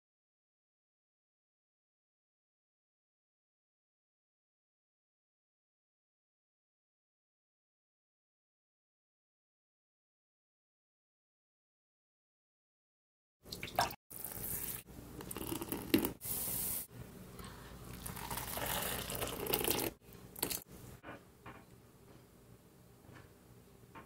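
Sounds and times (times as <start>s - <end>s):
soup sloshing in a pot: 17.9s - 20.6s.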